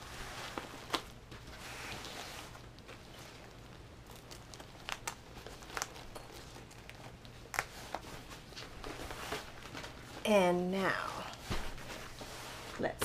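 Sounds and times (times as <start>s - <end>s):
fabric and plastic rustling: 0.0s - 13.0s
sharp crackles: 3.4s - 7.7s.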